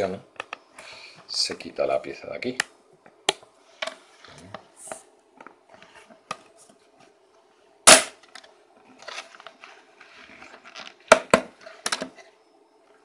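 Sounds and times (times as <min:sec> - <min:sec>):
plastic rustling: 0:08.9 - 0:11.8.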